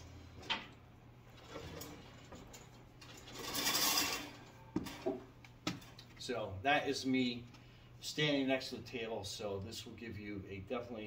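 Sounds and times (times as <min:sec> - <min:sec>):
metal table legs scraping floor: 0:01.3 - 0:05.2.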